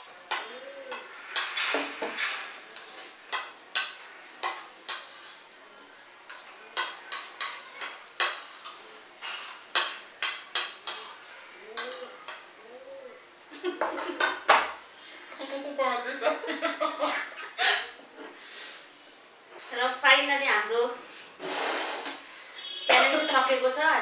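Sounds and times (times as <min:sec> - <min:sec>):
metal spoon scraping ceramic plate: 0:10.5 - 0:12.2.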